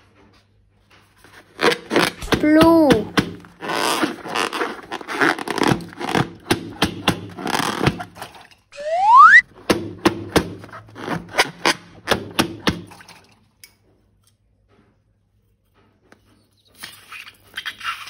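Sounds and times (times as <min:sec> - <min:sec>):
rising squeal-like glide: 0:08.8 - 0:09.4.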